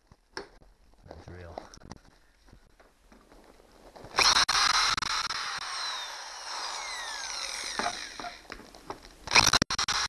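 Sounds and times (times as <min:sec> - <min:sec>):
power drill whining: 0:04.2 - 0:08.5.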